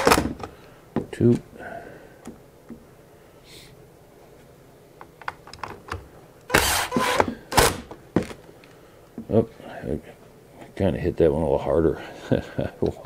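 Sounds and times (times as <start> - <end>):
cordless drill driving screw: 6.5 - 7.8.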